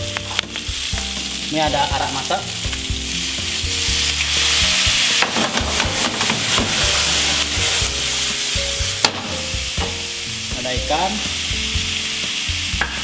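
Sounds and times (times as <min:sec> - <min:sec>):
vegetables sizzling in pan: 0:00.0 - 0:13.0
pan clattering: 0:04.5 - 0:07.5.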